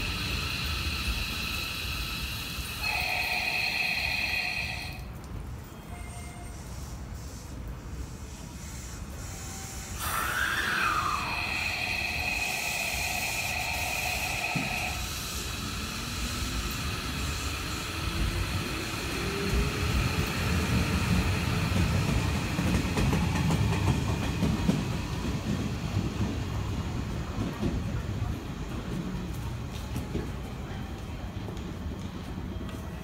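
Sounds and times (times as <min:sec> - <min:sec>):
wheels rumbling on rails: 0:00.0 - 0:06.7, 0:10.0 - 0:33.0
steady high tone: 0:00.8 - 0:05.1, 0:09.9 - 0:15.2
electric train motor whine rising: 0:10.0 - 0:15.1.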